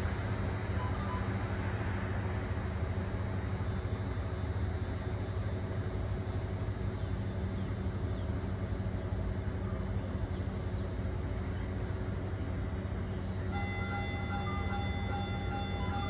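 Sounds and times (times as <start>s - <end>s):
electric train humming: 0.0s - 16.0s.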